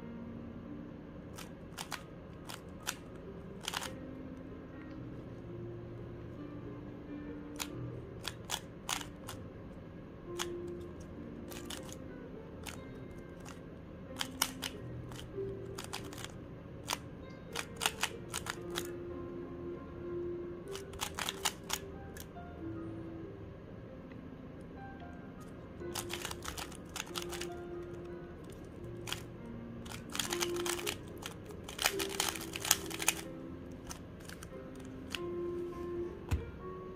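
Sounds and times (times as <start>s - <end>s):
quiet background music: 0.0s - 36.9s
puzzle cube plastic clicks: 1.4s - 4.0s, 7.6s - 9.4s, 11.5s - 12.0s, 12.6s - 12.8s, 13.4s - 13.6s, 14.2s - 17.0s, 17.6s - 18.9s, 20.7s - 22.3s, 25.9s - 27.6s, 28.4s - 35.2s.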